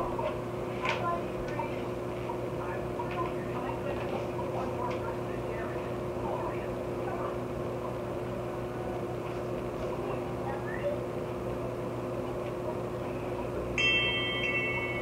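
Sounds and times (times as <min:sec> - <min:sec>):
indoor room hum: 0:00.0 - 0:15.0
bright ringing chime: 0:13.8 - 0:15.0.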